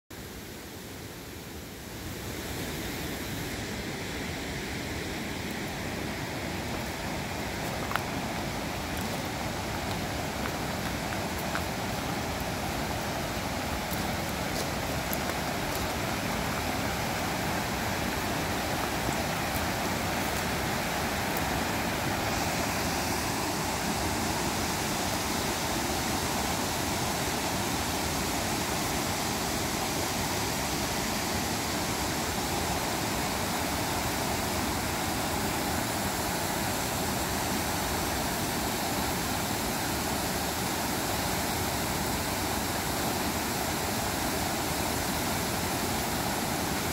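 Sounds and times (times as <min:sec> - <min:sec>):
river rapids rushing: 0:00.2 - 0:46.9.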